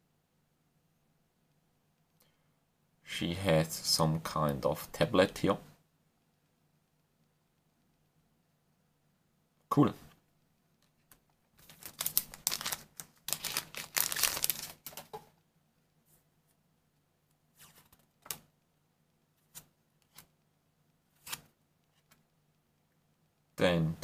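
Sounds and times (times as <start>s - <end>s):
trading cards rustling and sliding: 11.0s - 15.2s, 21.2s - 22.2s.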